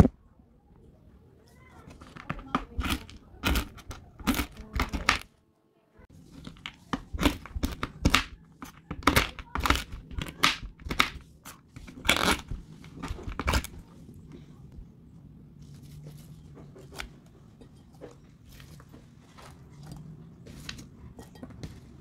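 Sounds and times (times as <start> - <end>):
knife chopping nuts on wooden board: 2.0 - 5.2, 6.5 - 13.7.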